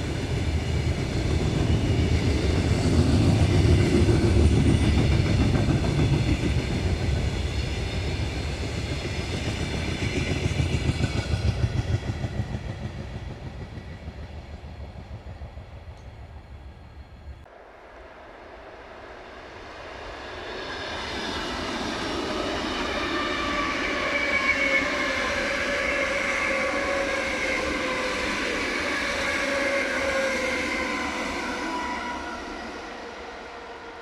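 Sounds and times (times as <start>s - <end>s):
train wheels rumbling on rails: 0.0s - 17.5s.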